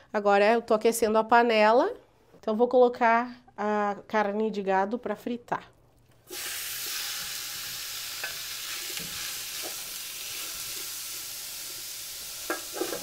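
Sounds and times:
meat sizzling in hot oil: 0:06.3 - 0:13.0.

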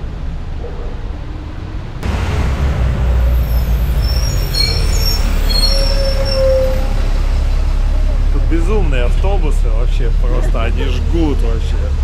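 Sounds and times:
bus engine rumbling: 0:00.0 - 0:12.0
high squealing tones: 0:03.1 - 0:07.2.

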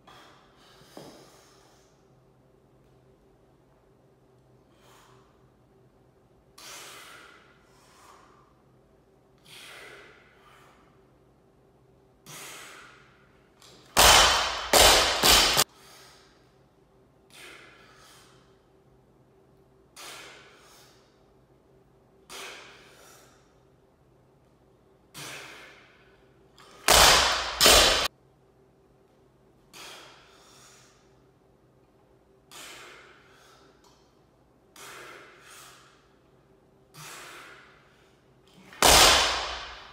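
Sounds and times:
man breathing hissing breaths: 0:00.0 - 0:02.1, 0:04.6 - 0:05.6, 0:06.5 - 0:11.2, 0:12.2 - 0:13.4, 0:14.5 - 0:16.6, 0:17.3 - 0:18.7, 0:19.9 - 0:21.3, 0:22.2 - 0:23.6, 0:25.1 - 0:26.2, 0:29.7 - 0:31.2, 0:32.4 - 0:38.7
sharp forceful breaths: 0:36.9 - 0:39.9.

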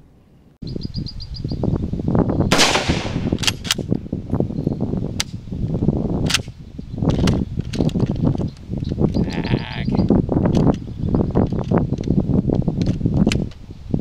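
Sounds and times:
rifle shot with echo: 0:02.5 - 0:03.8
rifle bolt metallic clicks: 0:02.6 - 0:04.0.

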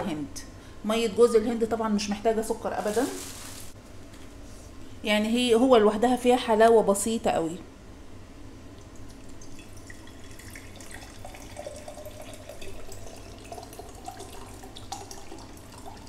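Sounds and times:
liquid pouring into glass jar: 0:08.7 - 0:16.0.

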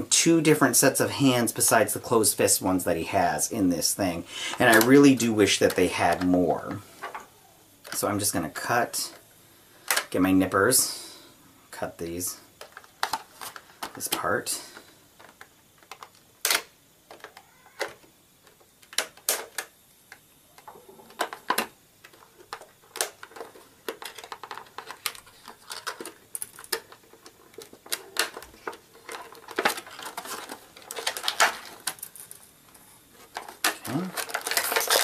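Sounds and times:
plastic packaging rustling: 0:20.7 - 0:35.0.

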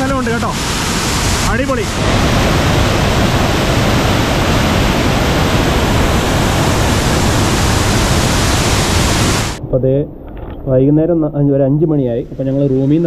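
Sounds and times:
waterfall roaring: 0:00.0 - 0:09.6.

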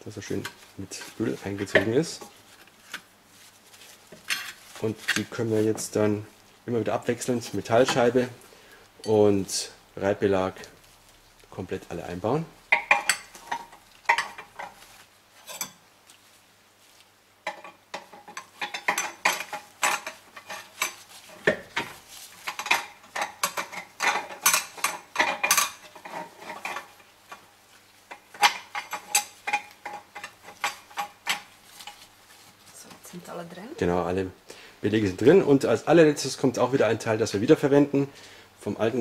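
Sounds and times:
metal plates clinking and scraping: 0:17.5 - 0:27.0, 0:28.1 - 0:32.0.

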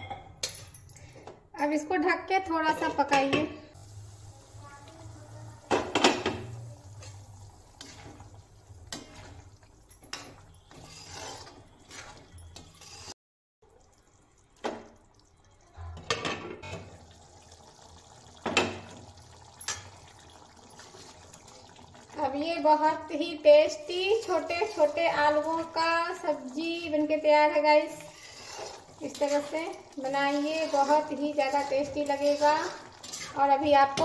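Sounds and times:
curry bubbling: 0:03.7 - 0:34.0
pans and utensils clinking: 0:05.6 - 0:13.1, 0:16.0 - 0:17.0, 0:18.3 - 0:21.4, 0:28.0 - 0:34.0.

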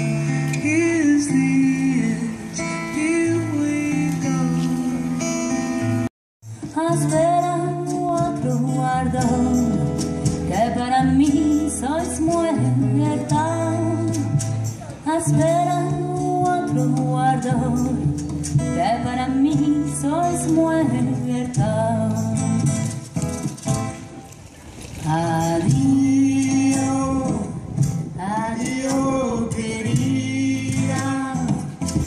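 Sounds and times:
strummed acoustic guitar: 0:00.0 - 0:32.0
woman singing: 0:06.6 - 0:23.0, 0:25.0 - 0:32.0.

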